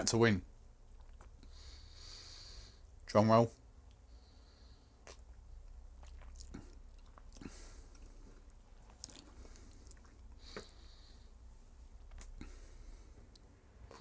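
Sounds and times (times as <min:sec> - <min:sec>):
lip and tongue clicks: 0:05.0 - 0:10.8.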